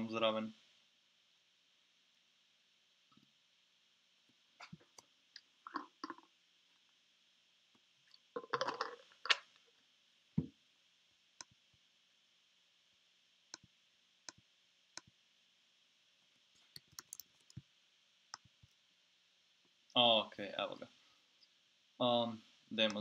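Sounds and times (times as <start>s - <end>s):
person gulping a drink: 5.7s - 6.2s, 8.4s - 9.4s
mouse clicks: 16.7s - 17.6s
laptop keyboard typing: 16.8s - 17.6s.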